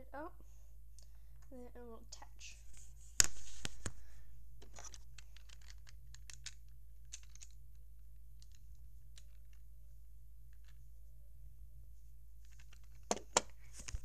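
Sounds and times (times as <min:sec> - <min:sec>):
plastic bricks clicking: 0:04.6 - 0:07.6, 0:08.4 - 0:09.6, 0:12.4 - 0:13.6
plastic pieces rustling: 0:04.6 - 0:07.6, 0:12.4 - 0:14.0.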